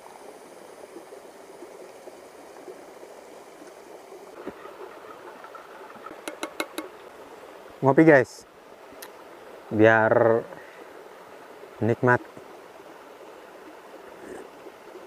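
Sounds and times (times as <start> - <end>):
river water rushing and splashing: 0.0 - 15.0.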